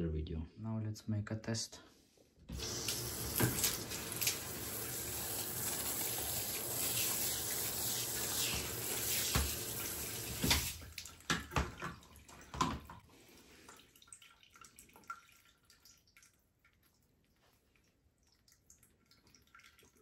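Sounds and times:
shower water spraying on tiles: 0:02.5 - 0:11.1
drips and splashes: 0:02.5 - 0:20.0.

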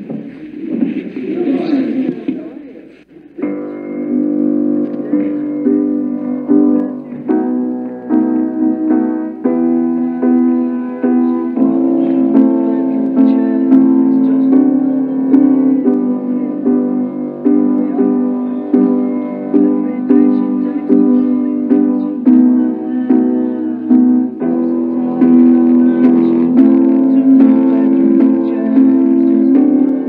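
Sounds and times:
piano playing repeated chords: 0:03.4 - 0:30.0.

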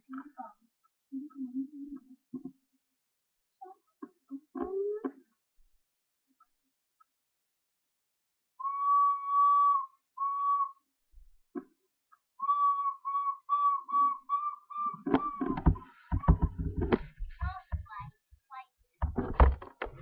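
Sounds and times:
person whistling: 0:08.6 - 0:10.9, 0:12.4 - 0:15.6.

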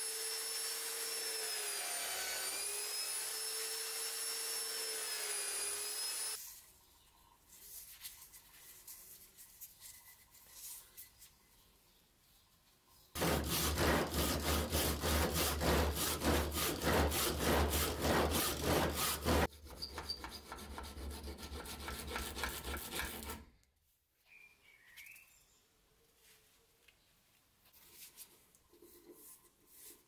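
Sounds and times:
hand saw cutting wood: 0:00.0 - 0:06.4, 0:13.2 - 0:23.5.

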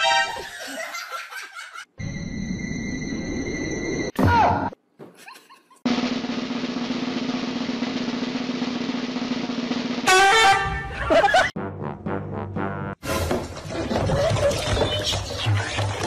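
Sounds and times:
snare drum roll: 0:05.9 - 0:10.6.

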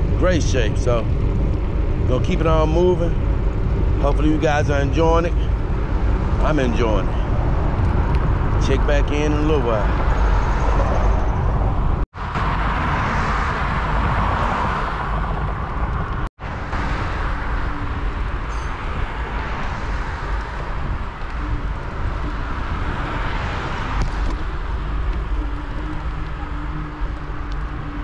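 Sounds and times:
road traffic noise: 0:00.0 - 0:28.0
wind rushing over microphone: 0:00.0 - 0:28.0.

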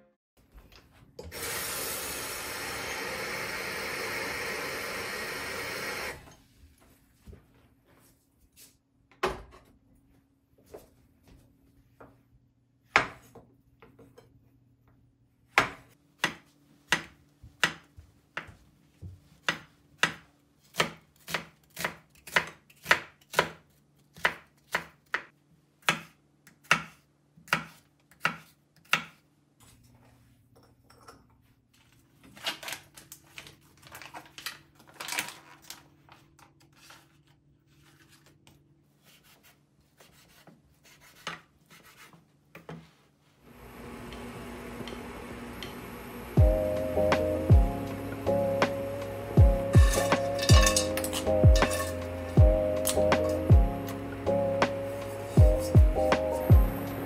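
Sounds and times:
plastic packaging crinkling: 0:32.4 - 0:36.6.

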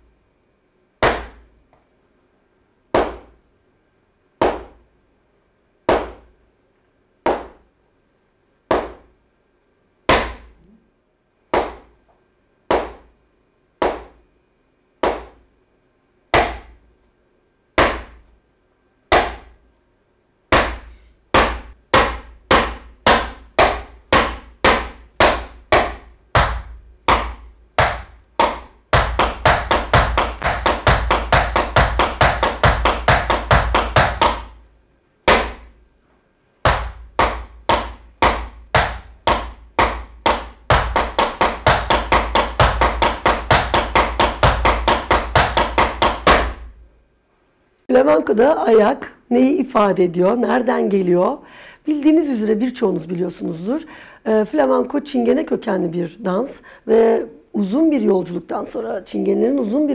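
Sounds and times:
dance shoes striking wooden floor: 0:01.0 - 0:01.4, 0:03.0 - 0:03.4, 0:04.4 - 0:04.8, 0:05.9 - 0:06.3, 0:07.3 - 0:07.6, 0:08.7 - 0:09.1, 0:11.5 - 0:11.9, 0:12.7 - 0:13.1, 0:13.8 - 0:14.2, 0:15.0 - 0:15.4, 0:16.4 - 0:16.8, 0:20.5 - 0:34.6, 0:35.3 - 0:35.8, 0:36.6 - 0:46.8.

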